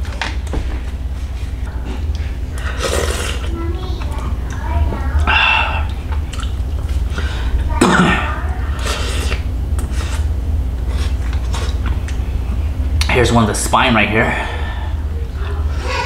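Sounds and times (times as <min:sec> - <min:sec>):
steady low hum: 0:00.0 - 0:16.0
man sucking and chewing: 0:02.0 - 0:03.5, 0:05.2 - 0:07.3, 0:08.8 - 0:12.2.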